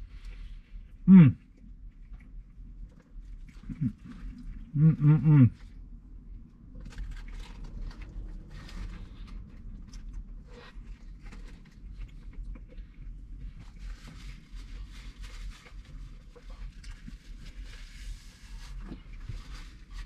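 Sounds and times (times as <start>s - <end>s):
steady low hum: 0.0s - 20.0s
person chewing wetly: 6.4s - 13.8s.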